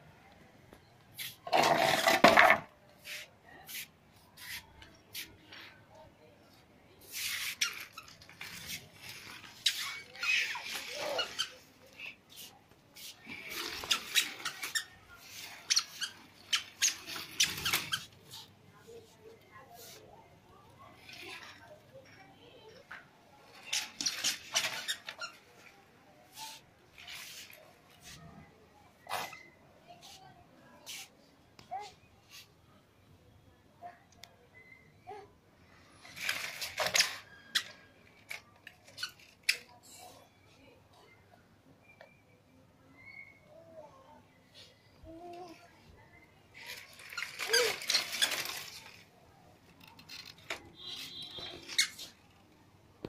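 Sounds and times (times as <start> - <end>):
baby walker squeaks and clicks: 1.2 - 3.2, 7.0 - 18.5, 20.9 - 28.2, 29.0 - 30.1, 35.9 - 40.3, 46.6 - 52.5
baby walker clattering on concrete: 1.4 - 2.7, 23.6 - 25.4, 46.6 - 49.0.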